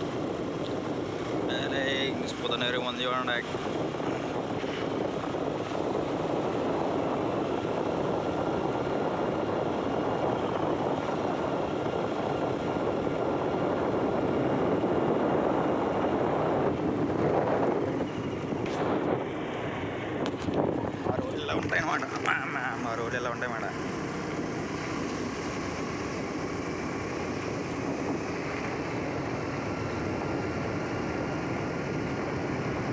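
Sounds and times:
wind on microphone: 0:00.0 - 0:32.9
scooter engine: 0:23.6 - 0:32.9.

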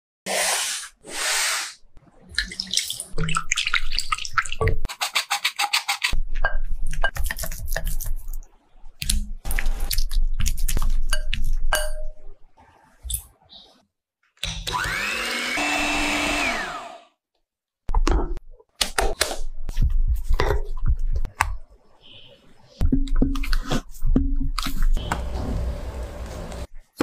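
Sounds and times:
short bursts of hiss: 0:00.3 - 0:01.8.

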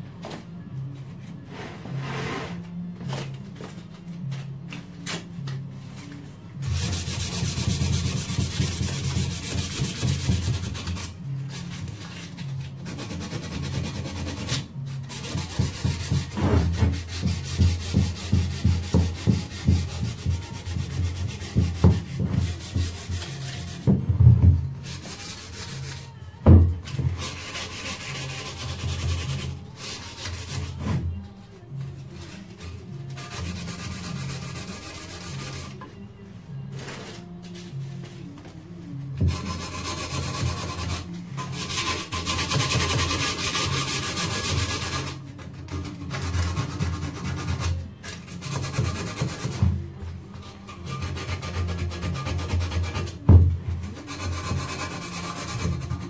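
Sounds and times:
hand sanding: 0:06.6 - 0:24.1, 0:24.8 - 0:26.2, 0:27.0 - 0:31.0, 0:32.2 - 0:35.8, 0:39.3 - 0:49.8, 0:50.4 - 0:56.0.

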